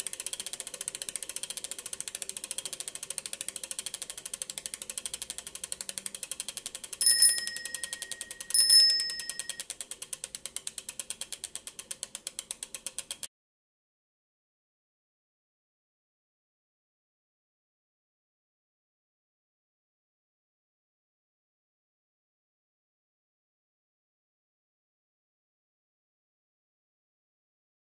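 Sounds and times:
bicycle freewheel ticking: 0.0 - 13.3
bicycle bell ringing: 7.0 - 9.6.

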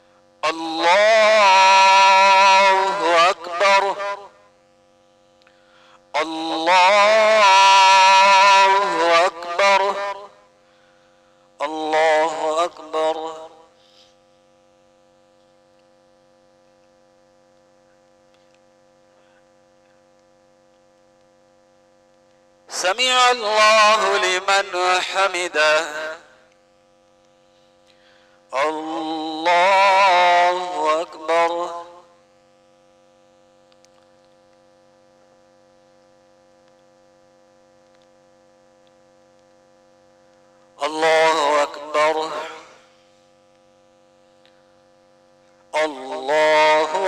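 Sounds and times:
electrical hum: 0.0 - 47.0
faint clicks: 17.5 - 18.7, 33.6 - 34.7, 37.8 - 38.2.

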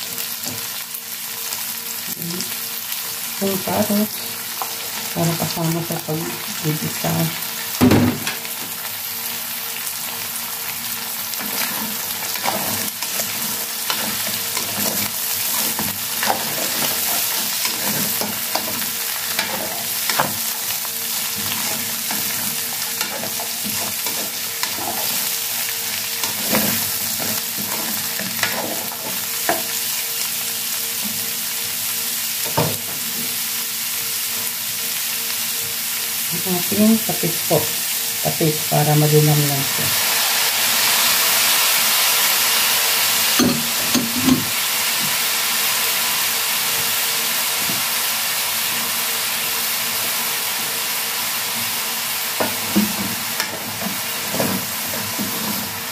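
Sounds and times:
food sizzling in a pot: 0.0 - 55.9.

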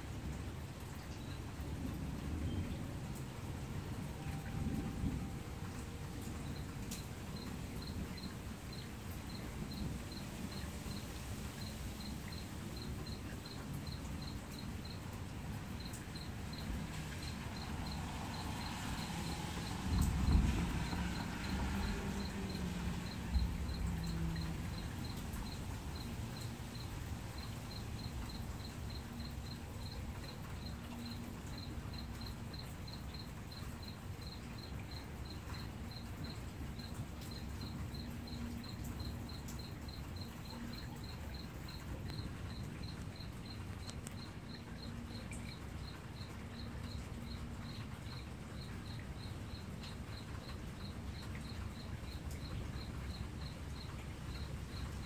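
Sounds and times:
cricket chirping: 0.8 - 55.0
low outdoor rumble: 12.0 - 28.5.

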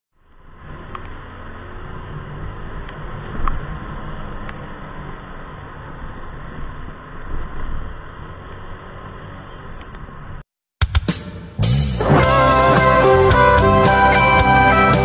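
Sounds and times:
scooter engine and road rumble: 0.2 - 10.4.

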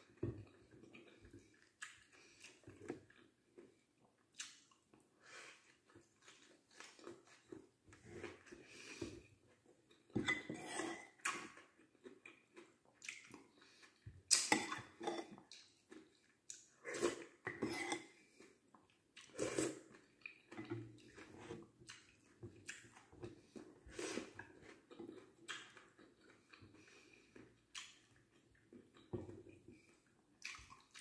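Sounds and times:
chewing and mouth smacks: 0.0 - 7.7, 9.6 - 17.5, 18.2 - 31.0.

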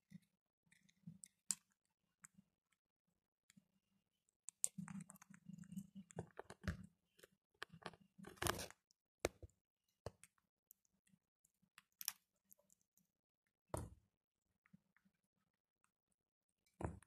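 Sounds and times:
parakeets crunching food: 4.4 - 9.5, 10.1 - 13.1.

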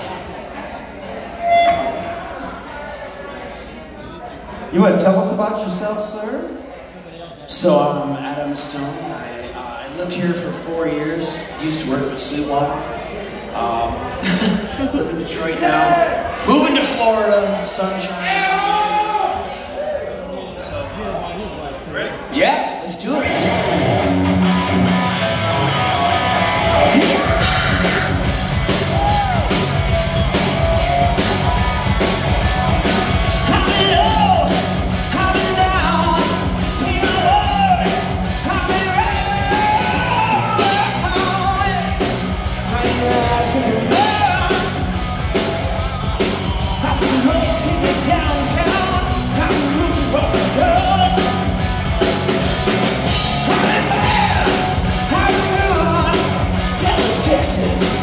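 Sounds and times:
electric guitar: 23.3 - 35.5
steady drum beat: 25.8 - 58.0.

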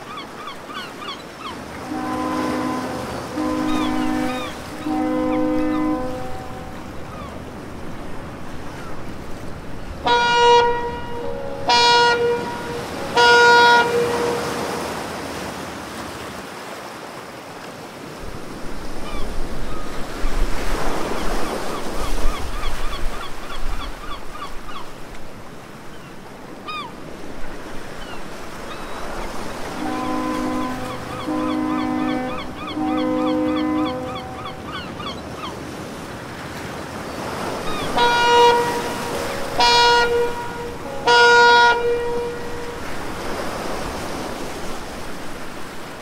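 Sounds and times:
water lapping: 0.0 - 46.0
short flat horn blasts: 1.7 - 6.9, 10.0 - 15.0, 29.5 - 34.6, 37.8 - 44.1.

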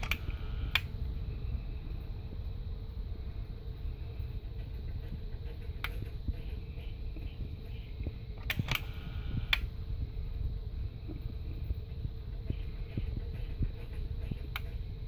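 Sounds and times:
mechanical clicks: 0.0 - 0.9, 8.4 - 9.7
steady low hum: 0.0 - 15.0.

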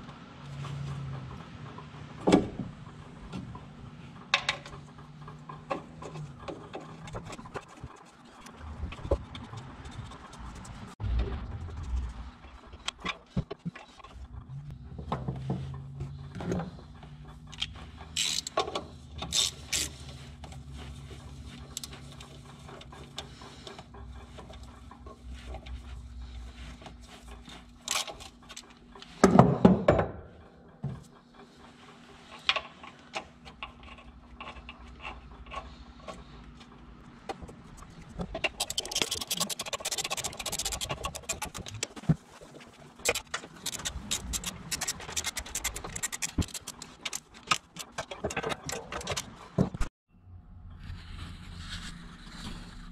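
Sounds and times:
wrench clinks and scrapes: 17.6 - 20.2, 43.0 - 49.4
ratchet clicking: 43.0 - 48.0.

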